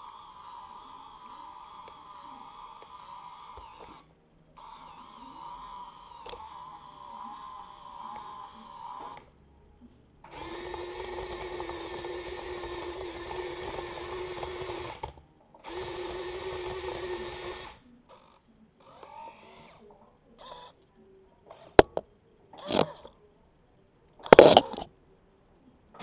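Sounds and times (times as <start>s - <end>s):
small electric motors whining: 0.0s - 9.4s, 10.2s - 23.2s, 24.2s - 24.9s.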